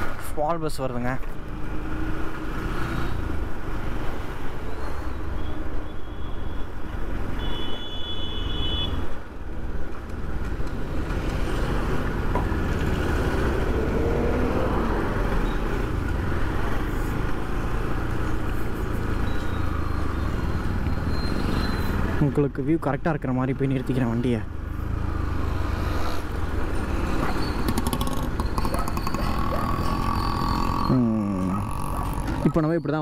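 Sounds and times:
vehicle horn: 7.4s - 9.0s.

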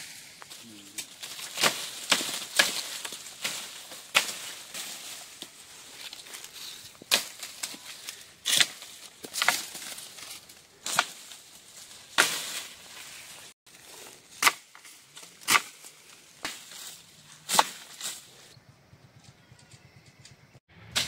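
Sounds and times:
pole whacking tree branches: 0.0s - 13.5s, 14.3s - 18.4s
leaves rustling: 0.0s - 18.6s.

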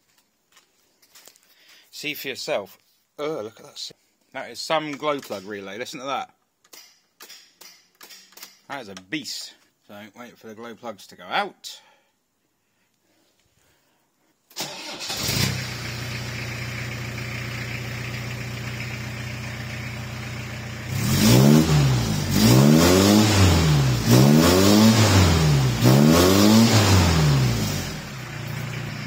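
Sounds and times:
engine revving: 14.6s - 17.0s, 17.7s - 29.0s
diesel engine starting and idling: 14.6s - 29.0s.

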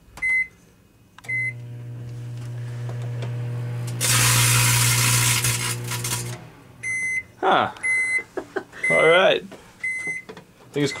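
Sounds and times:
microwave keypad beeping: 0.2s - 0.5s, 1.3s - 1.6s, 6.8s - 9.1s, 9.8s - 11.0s
microwave oven humming: 1.2s - 9.0s.

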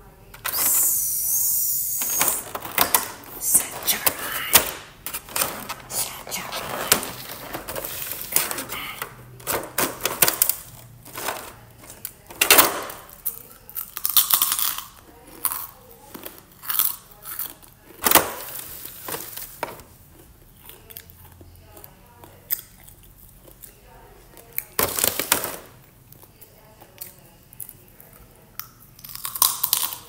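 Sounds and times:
plastic box crackling: 2.0s - 13.1s
crunching bites and chewing: 13.0s - 18.1s, 26.1s - 30.0s.

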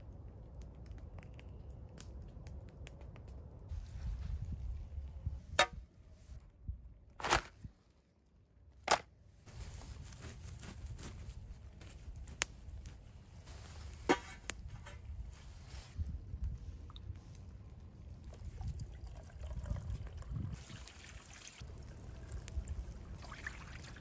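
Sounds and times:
campfire embers stirred with a stick: 9.4s - 18.8s, 19.6s - 23.2s.

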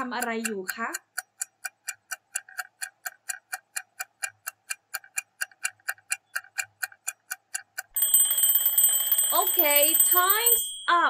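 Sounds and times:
countdown timer ticking: 0.0s - 11.0s.

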